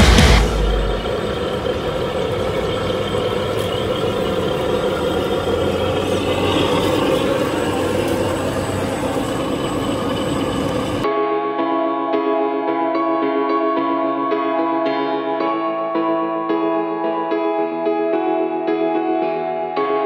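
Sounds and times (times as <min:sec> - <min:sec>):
rc trucks motor whine and gears: 0:00.0 - 0:11.0.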